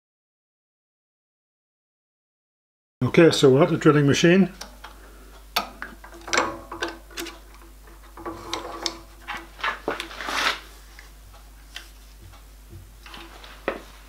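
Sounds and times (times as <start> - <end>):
metal scrape: 8.2 - 10.7.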